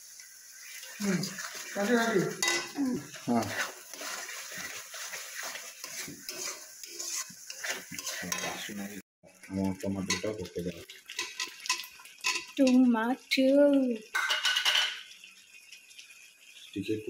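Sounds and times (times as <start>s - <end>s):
frying sizzle: 0.0s - 17.0s
metal spoon scraping cooking pan: 0.7s - 8.8s, 10.1s - 10.3s, 11.1s - 12.8s, 14.1s - 15.0s.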